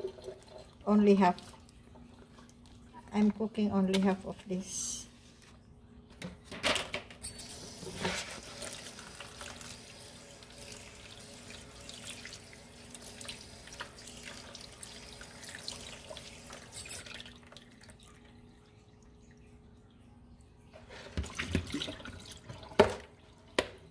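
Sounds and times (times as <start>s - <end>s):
tap water splashing into sink: 13.0s - 18.1s, 21.0s - 23.9s.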